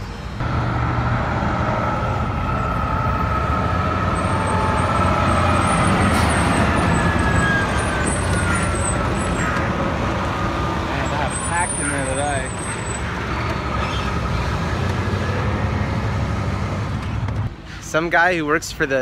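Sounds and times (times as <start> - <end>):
diesel truck engine rumbling: 0.0 - 17.8.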